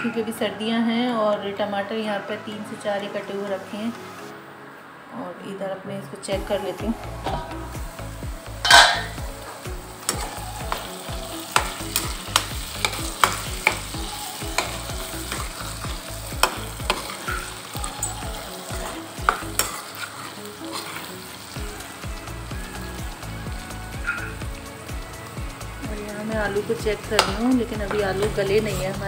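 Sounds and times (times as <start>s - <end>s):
vegetables sizzling in oil: 6.4s - 29.0s
spatula scraping pan: 8.6s - 21.5s
spatula clinking against pan: 8.7s - 9.2s.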